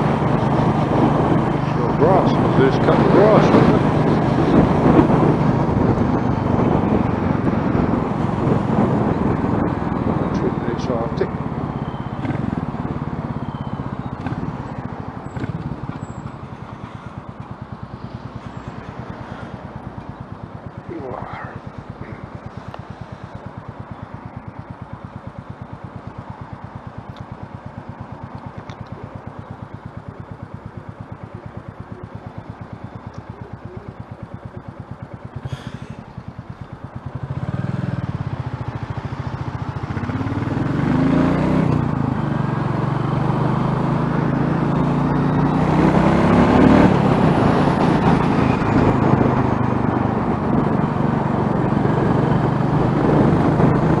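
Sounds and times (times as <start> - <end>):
wind noise: 0.0 - 16.5, 45.7 - 54.0
motorcycle engine: 0.0 - 54.0.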